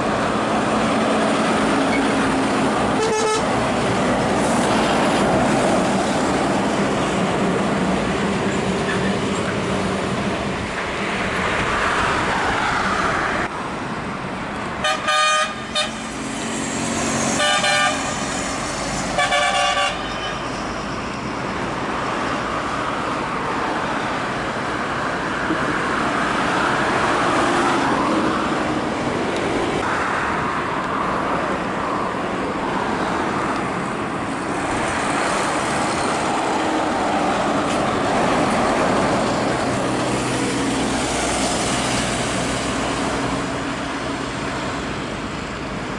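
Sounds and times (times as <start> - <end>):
heavy trucks passing on highway: 0.0 - 45.9
truck horn blasts: 3.0 - 3.5, 14.8 - 16.0, 17.3 - 18.2, 19.2 - 20.5.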